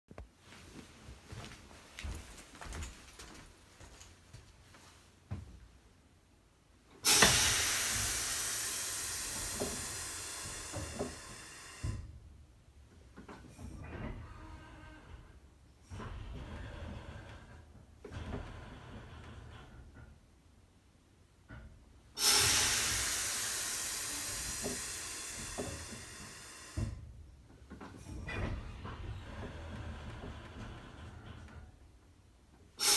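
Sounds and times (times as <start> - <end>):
compressed air hissing: 7.0 - 12.1, 22.2 - 27.0.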